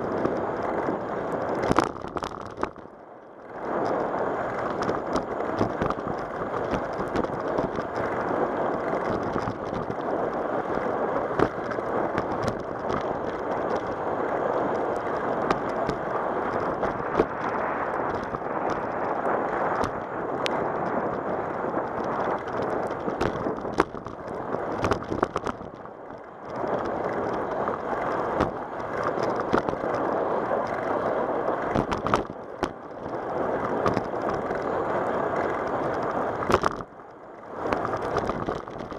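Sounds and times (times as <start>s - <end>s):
tyre and wind noise: 0.0s - 38.9s
bike clicks and knocks: 19.7s - 31.0s, 31.6s - 34.7s, 35.4s - 36.9s, 37.7s - 38.9s.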